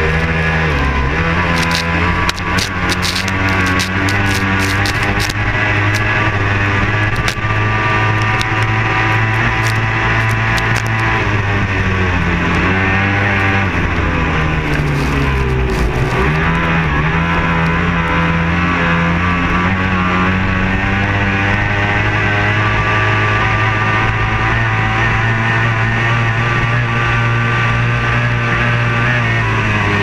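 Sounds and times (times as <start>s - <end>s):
powerboat engine at speed: 0.0s - 30.0s
wind: 0.0s - 30.0s.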